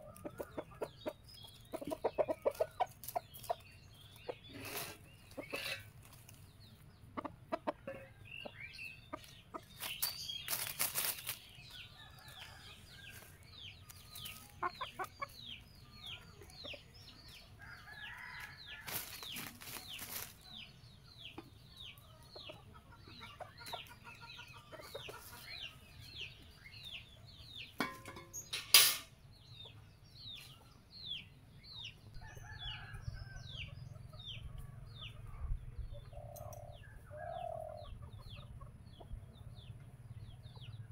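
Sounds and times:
hens clucking: 0:00.0 - 0:26.5, 0:36.1 - 0:40.9
small bird chirping: 0:00.0 - 0:40.9.

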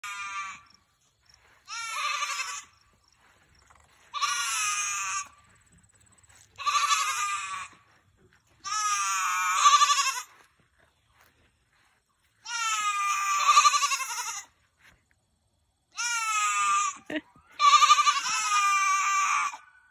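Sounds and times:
goat bleating: 0:00.0 - 0:00.7, 0:01.5 - 0:02.8, 0:04.0 - 0:05.5, 0:06.4 - 0:08.0, 0:08.6 - 0:10.5, 0:12.4 - 0:14.6, 0:15.9 - 0:19.7.

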